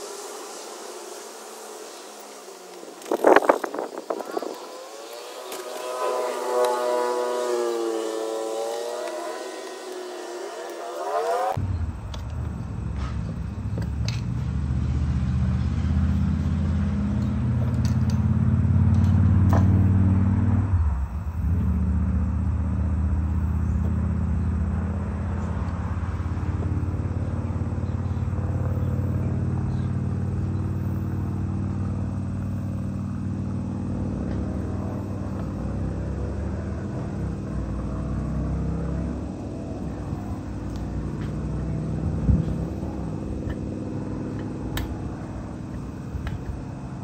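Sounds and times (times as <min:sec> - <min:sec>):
low engine rumble: 0:00.0 - 0:47.0.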